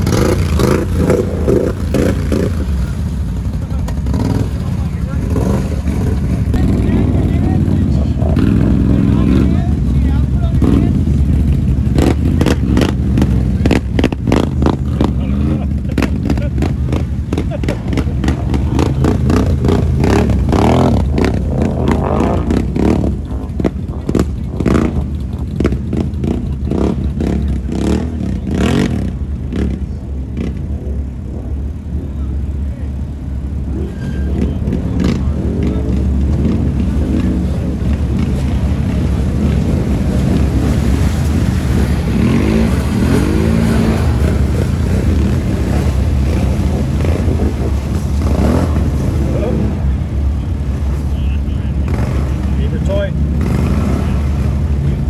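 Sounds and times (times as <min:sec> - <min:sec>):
atv engines revving: 0:00.0 - 0:55.0
water splashing: 0:33.0 - 0:55.0.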